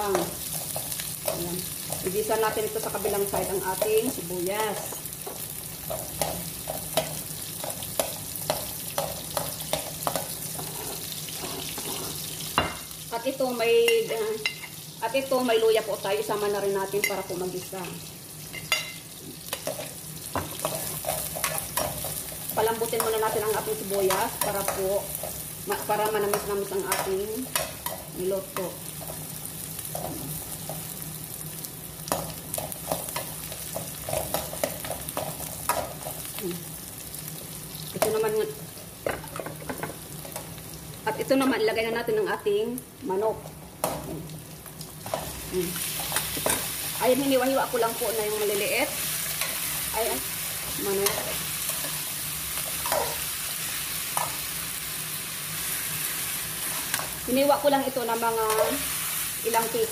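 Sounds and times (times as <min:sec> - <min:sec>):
onion sizzling in oil: 0:00.0 - 0:59.9
metal utensil scraping pan: 0:10.0 - 0:12.8.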